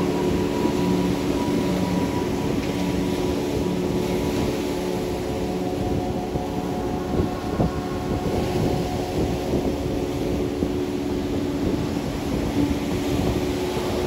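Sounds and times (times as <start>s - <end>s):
ocean surf on sandy beach: 0.0s - 14.0s
soft sustained music tones: 0.0s - 14.0s.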